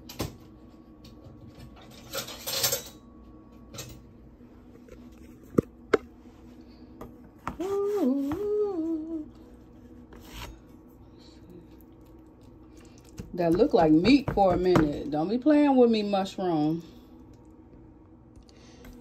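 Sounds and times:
woman humming: 7.5s - 9.5s.

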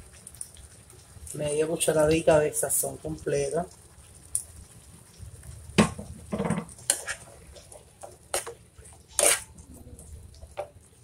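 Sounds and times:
spatula scraping frying pan: 6.3s - 9.6s.

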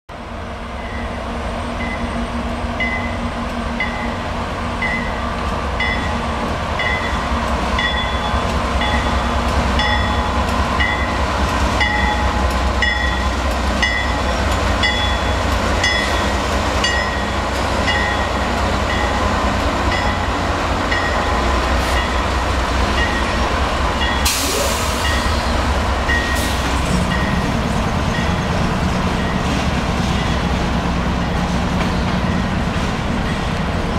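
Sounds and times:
locomotive rumble: 0.2s - 33.9s.

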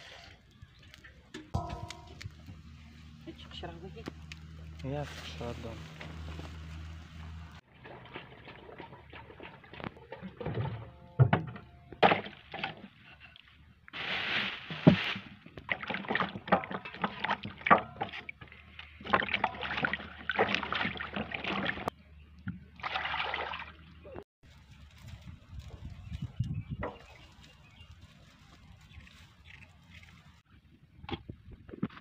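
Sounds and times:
sharp knocks: 1.4s - 2.6s
water sloshing in a plastic basin: 7.7s - 11.0s, 14.8s - 21.9s, 22.5s - 24.2s.

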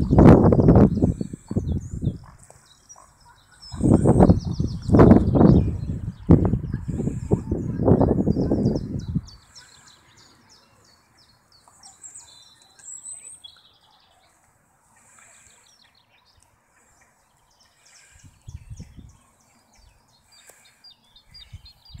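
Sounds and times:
low microphone rumbles: 0.0s - 2.4s, 3.7s - 9.4s
small birds chirping: 0.0s - 22.0s.

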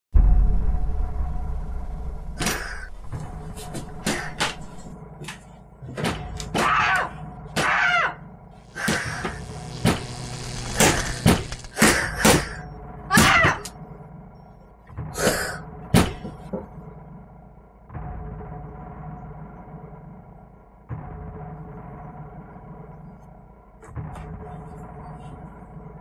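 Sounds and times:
deep low rumble: 0.1s - 5.9s.

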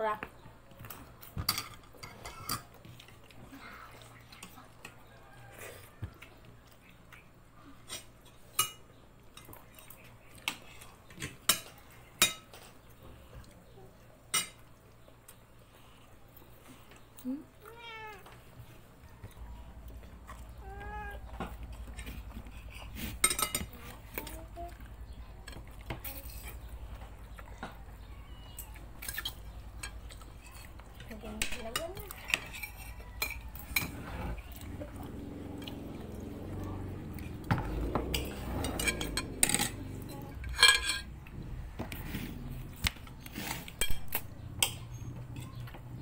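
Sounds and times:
spoons clinking on plates: 7.8s - 12.8s, 22.7s - 24.4s, 29.0s - 34.0s, 38.1s - 41.2s, 43.5s - 45.6s.

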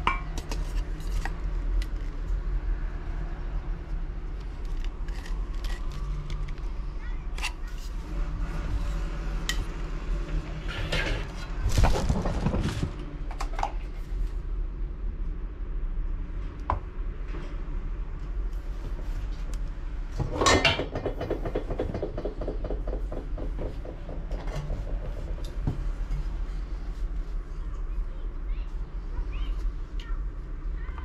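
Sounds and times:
steady low hum: 0.0s - 20.8s, 22.8s - 31.0s
packaging rustling and clattering: 11.5s - 13.0s.

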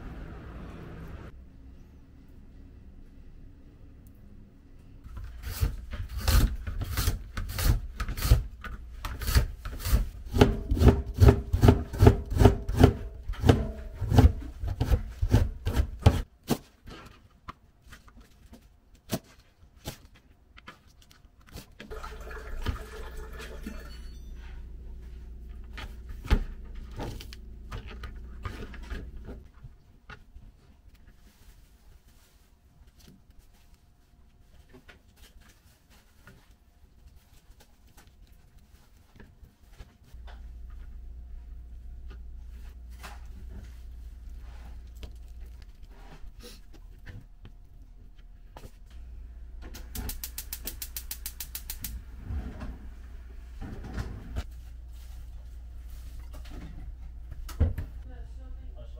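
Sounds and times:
knife chopping on plastic board: 5.5s - 16.6s
low steady hum: 17.4s - 58.9s.

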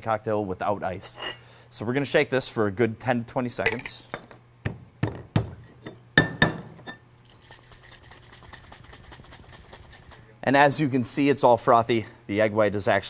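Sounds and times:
liquid sloshing in a shaker tin: 7.2s - 10.3s.

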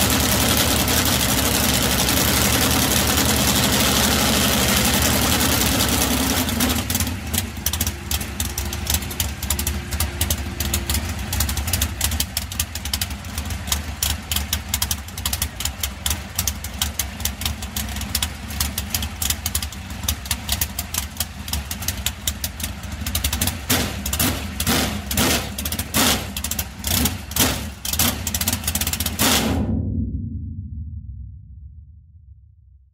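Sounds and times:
engine revving bursts: 0.0s - 12.2s, 23.7s - 28.3s
engine idling unevenly: 0.0s - 29.3s.

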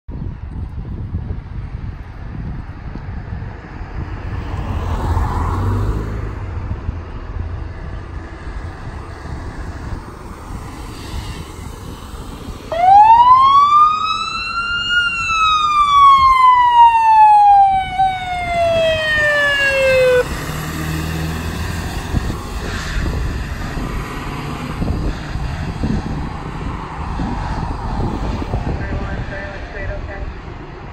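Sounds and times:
fire truck siren wailing: 12.7s - 22.6s
truck engine driving off: 12.7s - 25.4s.

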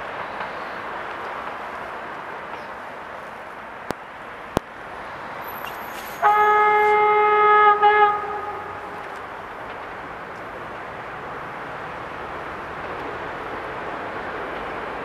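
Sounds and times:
train horn blast: 6.0s - 9.1s.

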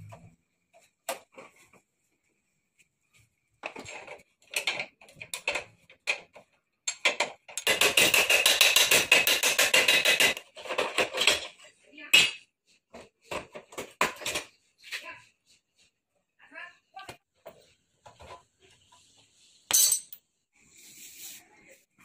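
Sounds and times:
metal tools clinking: 19.7s - 20.2s.

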